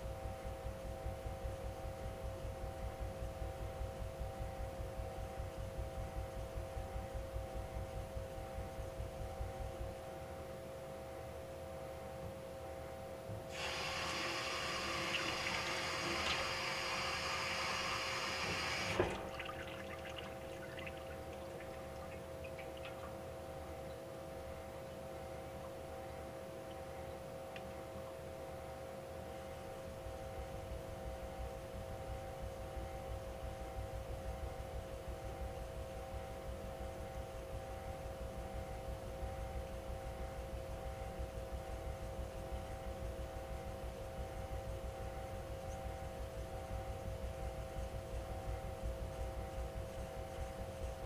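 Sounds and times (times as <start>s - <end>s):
water running from a tap: 13.5s - 22.2s.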